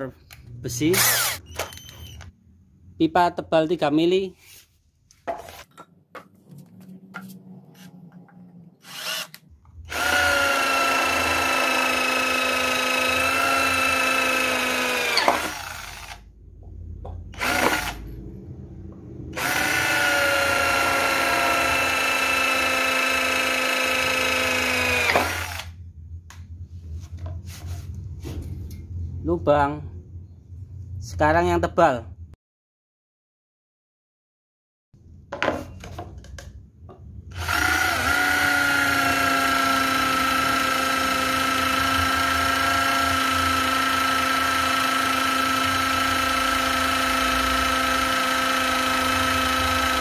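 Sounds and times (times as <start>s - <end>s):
electric drill boring through steel: 0.9s - 1.5s, 8.8s - 16.2s, 17.4s - 18.1s, 19.3s - 25.8s, 37.3s - 50.0s.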